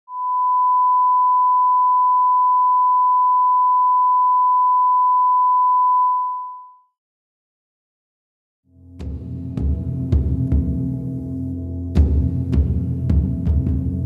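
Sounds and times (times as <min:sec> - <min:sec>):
sine-wave line-up tone: 0:00.1 - 0:07.0.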